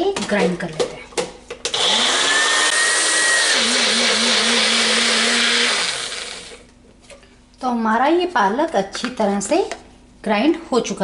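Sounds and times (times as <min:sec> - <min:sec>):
blender motor running: 0:01.7 - 0:06.6.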